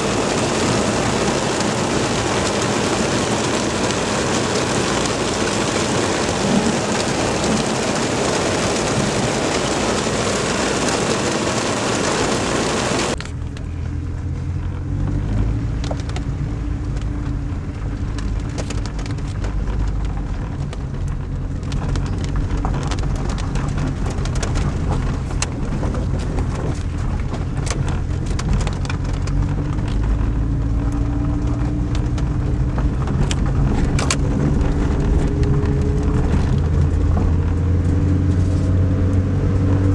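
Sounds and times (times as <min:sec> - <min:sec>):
heavy rain hissing: 0:00.0 - 0:13.2
raindrops ticking: 0:00.0 - 0:38.3
car engine running: 0:00.0 - 0:39.9.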